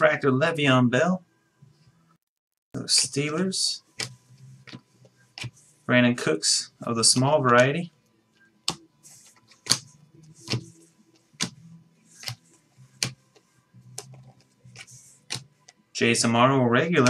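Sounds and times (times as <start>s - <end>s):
cards sliding swishes: 8.7s - 15.8s.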